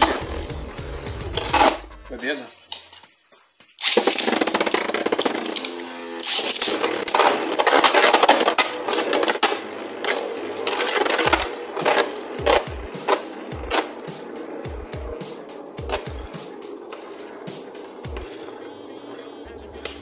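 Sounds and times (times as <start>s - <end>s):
spinning tops whirring and rattling: 0.0s - 1.9s, 2.6s - 20.0s
spinning tops clashing: 3.7s - 20.0s.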